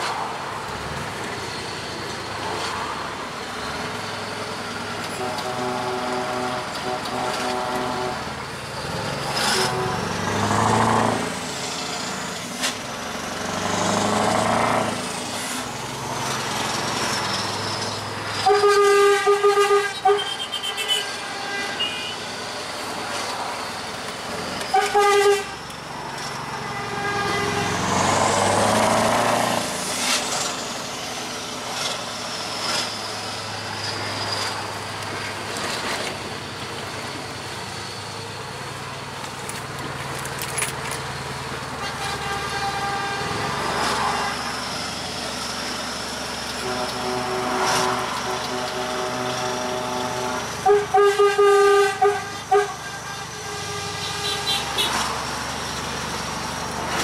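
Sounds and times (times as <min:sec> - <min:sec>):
truck engine revving: 0:03.8 - 0:18.6, 0:27.3 - 0:36.0
truck air horn toots: 0:05.0 - 0:08.3, 0:09.3 - 0:11.2, 0:18.3 - 0:22.3, 0:24.6 - 0:25.7, 0:26.5 - 0:29.3, 0:41.8 - 0:44.8, 0:46.6 - 0:55.2.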